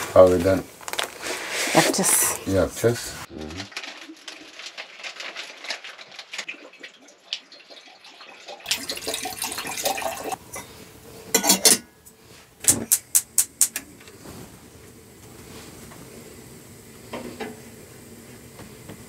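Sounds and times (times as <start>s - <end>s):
utensils and dishes clattering: 8.6s - 13.8s.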